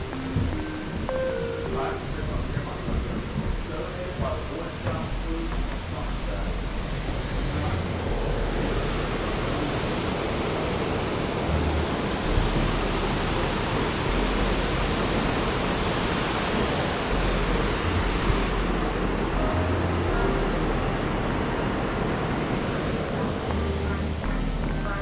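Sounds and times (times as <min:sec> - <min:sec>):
rush of falling water: 0:00.0 - 0:25.0.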